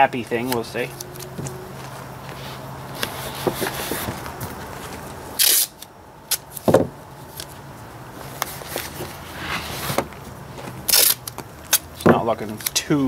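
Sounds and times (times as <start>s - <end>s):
paper rustling: 0.2s - 5.2s
masking tape ripped off roll: 5.4s - 6.6s, 10.9s - 11.9s.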